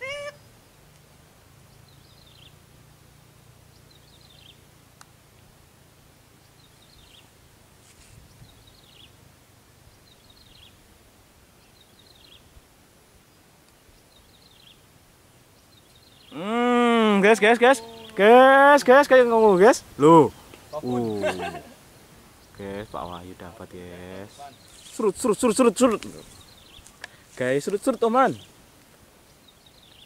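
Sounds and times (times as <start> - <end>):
bird calling: 0.0 - 0.5, 15.6 - 28.6.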